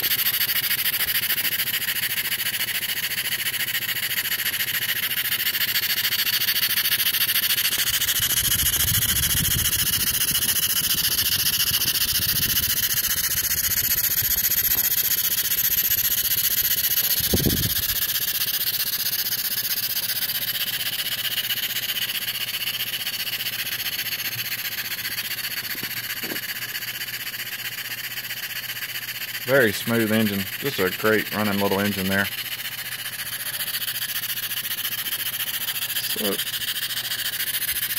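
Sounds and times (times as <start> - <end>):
model steam engine exhaust hiss: 0.0 - 37.9.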